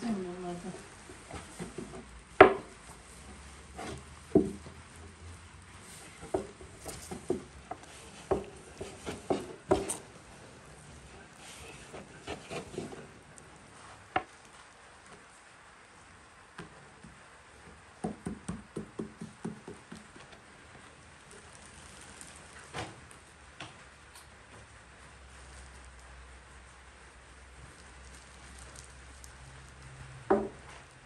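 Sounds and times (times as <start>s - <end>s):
knocks on wooden board: 2.4s - 2.7s, 18.0s - 20.0s, 30.3s - 30.6s
hands patting flatbread on board: 6.1s - 10.2s, 18.0s - 20.4s.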